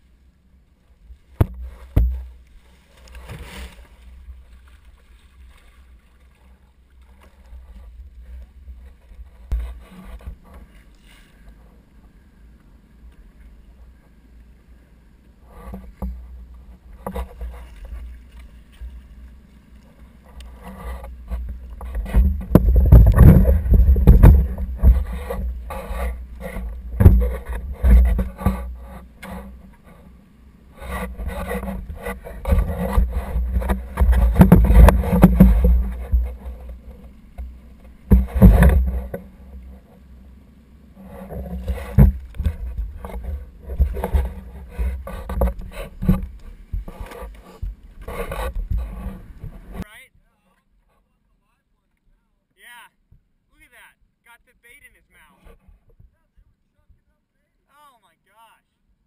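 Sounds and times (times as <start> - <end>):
water splashing: 1.1 - 11.7, 15.5 - 30.0
knocks and rubbing on kayak: 1.3 - 11.6, 15.4 - 19.4, 20.0 - 40.2, 40.9 - 49.9.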